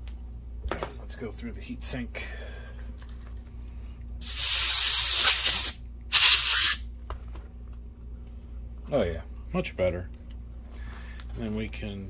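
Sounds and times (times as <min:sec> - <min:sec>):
compressed air hissing: 0:04.2 - 0:06.8.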